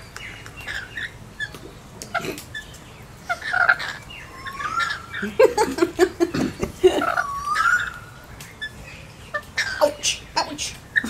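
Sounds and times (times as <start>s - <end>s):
parrots chattering and calling: 0.0s - 11.0s
rising whistled bird calls: 3.4s - 5.5s, 7.1s - 8.8s.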